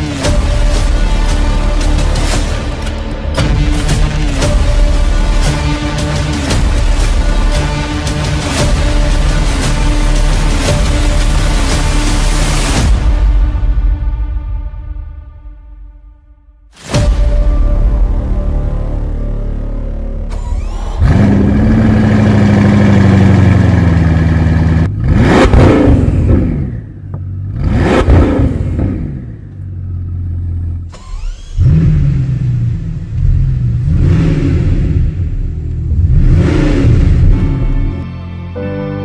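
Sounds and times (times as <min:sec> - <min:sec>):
car engine starting and idling: 0:18.8 - 0:38.0
car engine revving hard: 0:20.7 - 0:29.4, 0:31.1 - 0:37.8.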